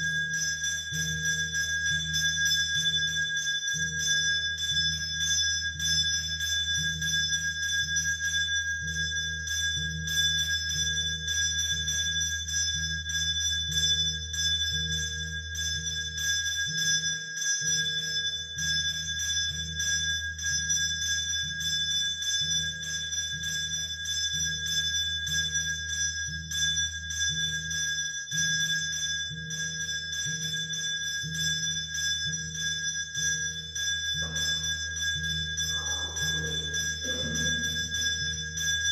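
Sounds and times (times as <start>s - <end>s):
temple bells ringing: 34.1s - 38.9s.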